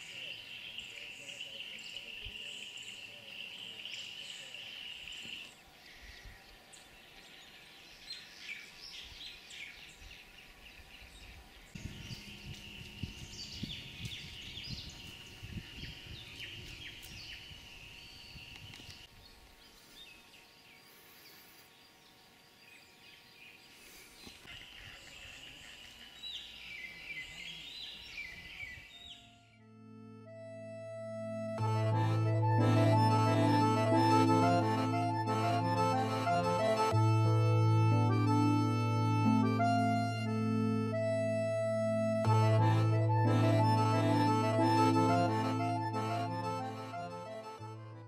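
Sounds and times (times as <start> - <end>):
birds chirping and calling: 0.0 - 19.0.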